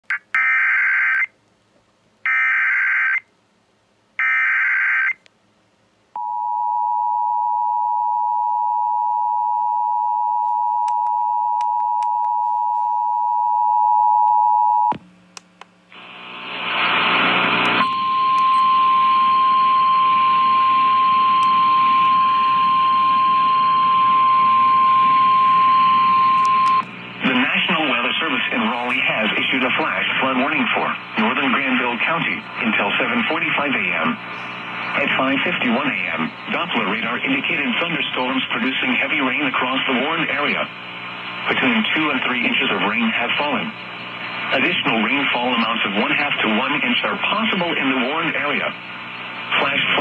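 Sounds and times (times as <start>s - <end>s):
radio hiss: 15.9s - 17.8s, 24.0s - 50.0s
two-tone attention signal: 17.8s - 26.8s.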